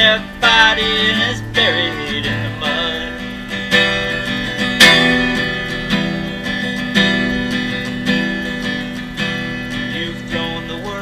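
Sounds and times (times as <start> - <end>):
acoustic guitar strummed: 0.0 - 11.0.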